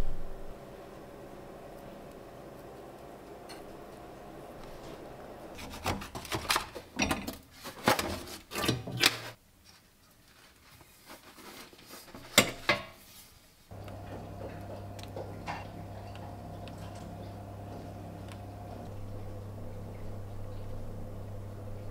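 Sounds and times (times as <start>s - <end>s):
low steady hum: 0.0s - 5.6s, 13.7s - 21.9s.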